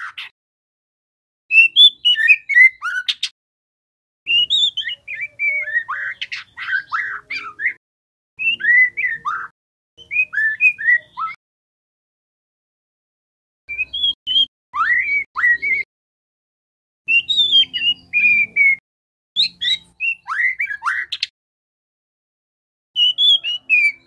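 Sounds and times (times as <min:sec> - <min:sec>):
bird singing warbling whistles: 0:01.5 - 0:03.3, 0:04.3 - 0:07.8, 0:08.4 - 0:11.4, 0:13.7 - 0:15.9, 0:17.1 - 0:18.8, 0:19.4 - 0:21.3, 0:23.0 - 0:24.0.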